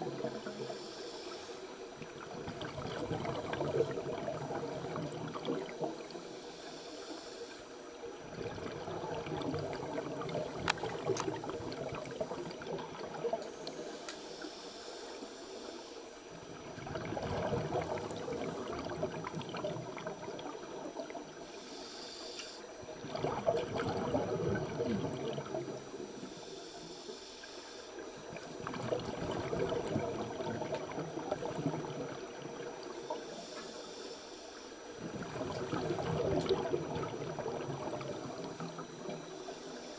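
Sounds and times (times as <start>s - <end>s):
exhaled air bubbling: 0.0s - 14.0s, 15.6s - 26.3s, 27.4s - 33.6s, 34.8s - 39.9s
regulator inhalation hiss: 0.1s - 1.9s, 6.1s - 8.0s, 13.5s - 16.4s, 21.4s - 22.8s, 25.8s - 28.2s, 32.9s - 35.0s, 38.4s - 39.9s.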